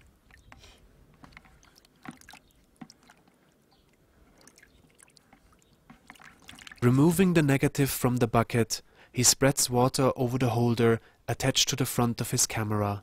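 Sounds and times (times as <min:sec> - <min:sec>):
small sharp splashes: 0:00.0 - 0:06.9
water swishing and dripping: 0:00.0 - 0:07.0.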